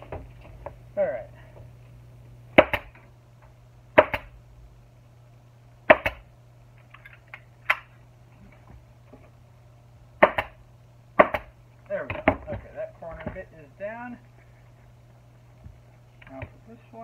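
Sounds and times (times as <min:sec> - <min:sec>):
pneumatic staple gun shots: 0:05.9 - 0:06.2.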